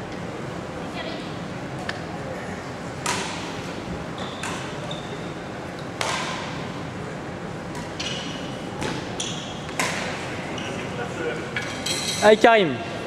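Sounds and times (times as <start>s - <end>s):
racquet hitting shuttlecock: 3.0s - 3.5s, 4.4s - 4.8s, 5.9s - 6.6s, 9.7s - 10.2s
shoes squeaking on court: 4.1s - 5.5s, 7.7s - 10.9s.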